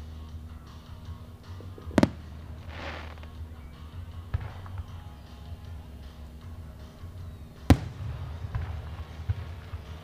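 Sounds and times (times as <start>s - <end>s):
steady low rumble: 0.0s - 10.0s
fireworks crackling hiss: 1.8s - 3.5s
firework bang: 1.9s - 3.3s.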